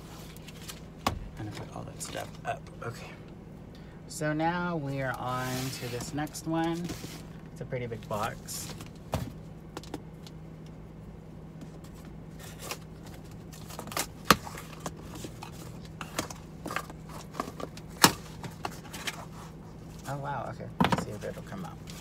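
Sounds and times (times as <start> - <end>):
low hum: 0.0 - 22.0
cardboard box rustling and scraping: 5.2 - 7.3.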